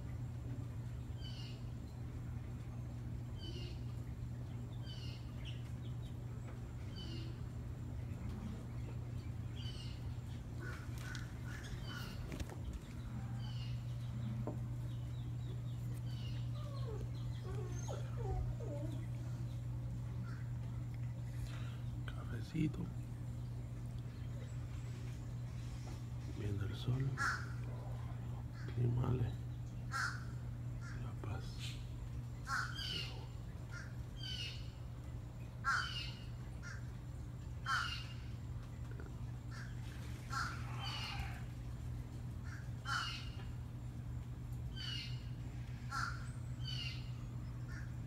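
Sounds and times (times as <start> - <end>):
birds chirping: 0.0 - 48.0
low hum: 0.0 - 48.0
lower wavering bird calls: 3.2 - 44.0, 44.6 - 48.0
crow cawing: 27.2 - 27.6, 29.9 - 31.0, 32.5 - 33.1, 35.6 - 36.9, 37.6 - 38.1, 39.5 - 41.5, 42.4 - 43.4, 45.8 - 46.9.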